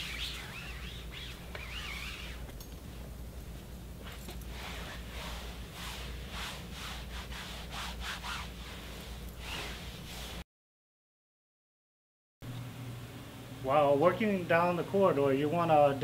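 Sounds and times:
gloved hand rubbing padded couch: 0.0s - 3.1s, 4.0s - 10.4s
low steady hum: 0.0s - 10.4s, 12.4s - 16.0s.

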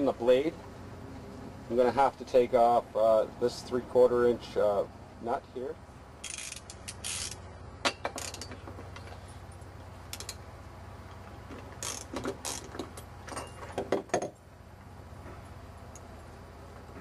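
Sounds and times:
ratchet wrench clicking: 6.2s - 7.4s, 8.2s - 8.5s, 10.1s - 10.4s, 11.8s - 12.8s.

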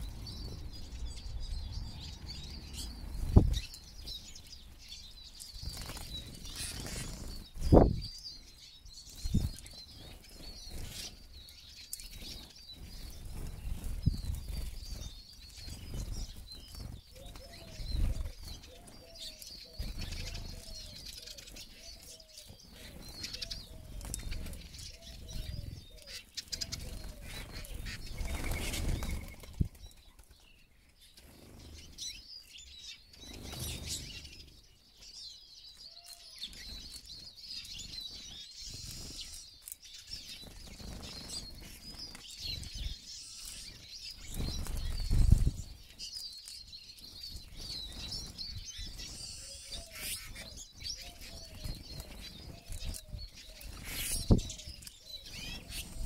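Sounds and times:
wings fluttering: 5.4s - 8.0s, 12.0s - 30.4s, 37.8s - 56.0s
high twittering bird chirps: 31.1s - 56.0s.

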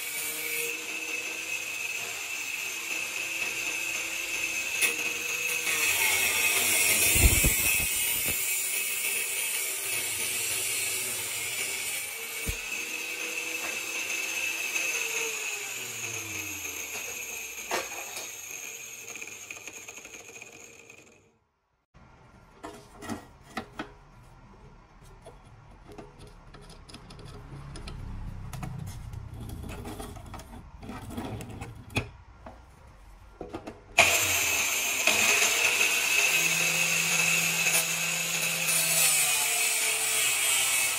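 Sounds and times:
angle grinder cutting steel: 0.0s - 21.2s, 34.0s - 40.9s.

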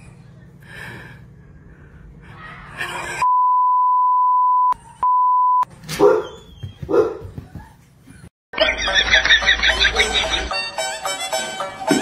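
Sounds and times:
censor bleep: 3.2s - 5.7s.

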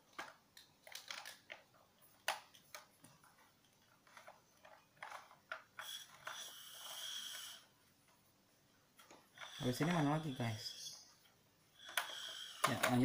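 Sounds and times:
breathy hiss with high tone: 5.8s - 7.8s, 9.3s - 13.0s.

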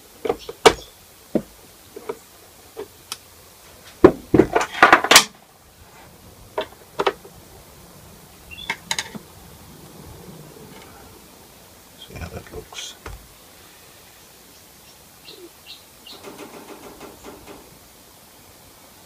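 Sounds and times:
knocks on wooden cabinet: 4.0s - 4.6s.

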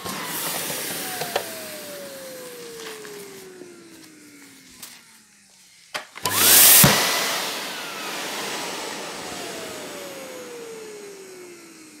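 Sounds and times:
vacuum cleaner switch click: 0.0s - 5.0s, 6.0s - 8.4s
vacuum cleaner motor whine: 0.0s - 12.0s.

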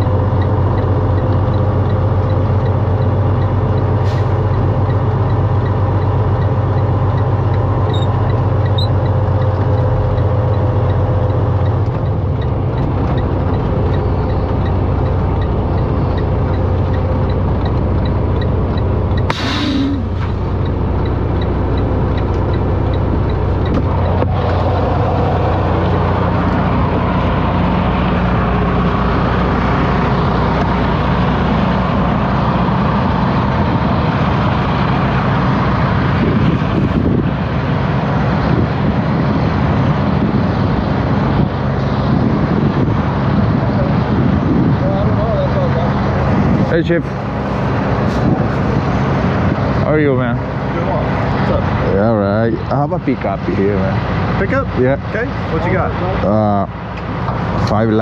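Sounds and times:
diesel truck engine running: 0.0s - 58.0s
air brakes hiss: 4.0s - 4.4s, 19.3s - 20.4s.

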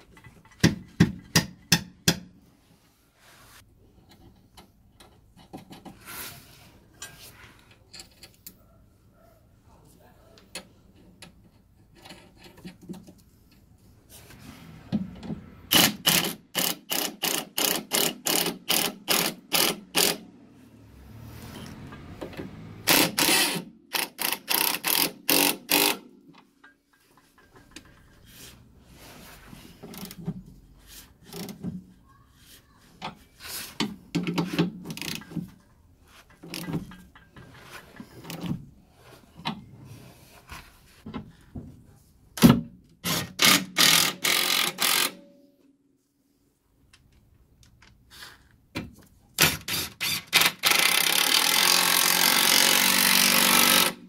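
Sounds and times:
impact wrench bursts: 15.7s - 20.2s, 22.8s - 26.1s, 43.0s - 45.2s, 49.4s - 54.0s.

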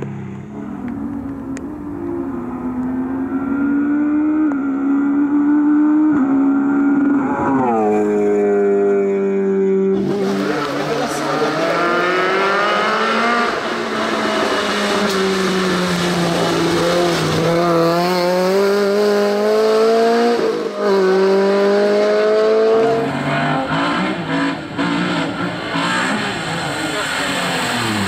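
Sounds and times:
rally car engines at full throttle: 0.0s - 28.0s
tyres hissing on wet road: 26.0s - 28.0s.

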